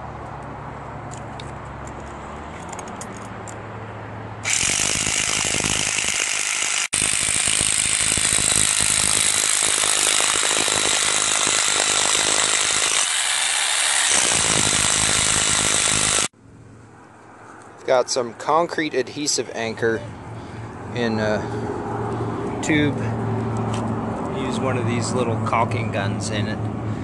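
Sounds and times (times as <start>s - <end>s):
hammer drill rattling into stone: 4.4s - 16.3s.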